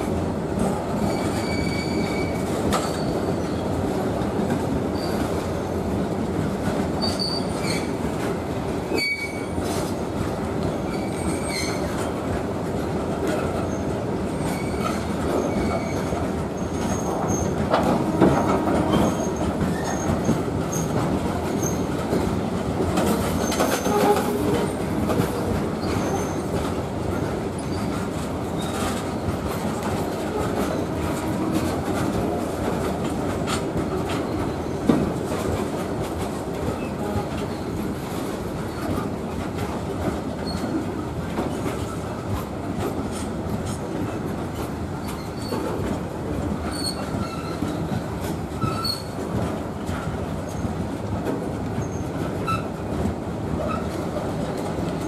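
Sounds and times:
steel wheels rumbling on rails: 0.0 - 55.0
high-pitched wheel squeals: 1.1 - 3.2.

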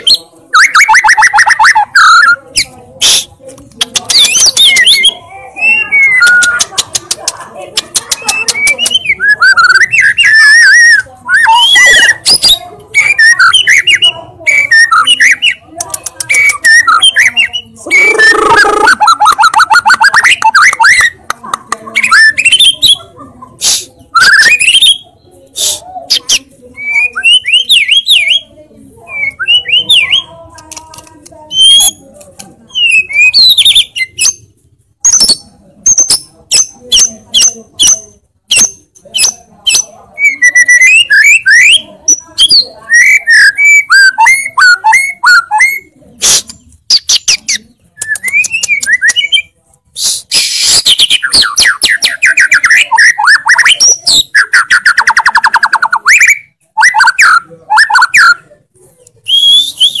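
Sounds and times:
songbird singing: 7.8 - 23.1, 26.1 - 34.5.

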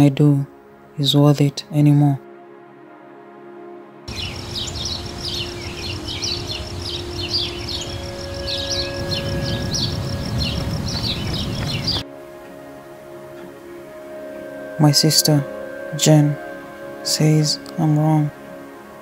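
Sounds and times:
small birds chirping: 4.1 - 12.0
steady low rumble: 4.1 - 12.0.

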